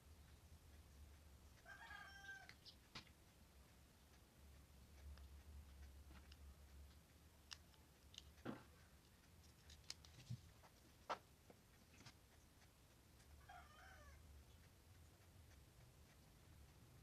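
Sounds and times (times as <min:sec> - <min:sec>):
faint animal call: 0:13.4 - 0:14.2.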